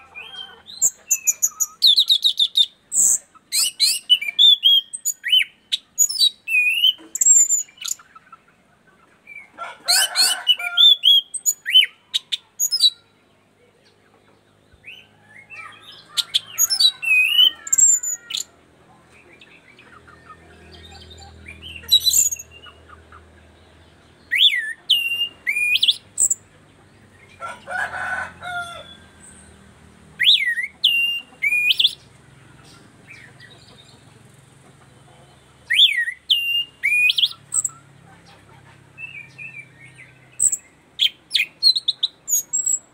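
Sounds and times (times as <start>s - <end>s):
bird singing chirps and whistles: 0.8s - 8.0s, 10.9s - 13.0s, 14.8s - 18.5s, 21.1s - 22.8s, 24.2s - 26.4s, 30.2s - 32.0s, 35.7s - 37.8s, 39.0s - 42.9s.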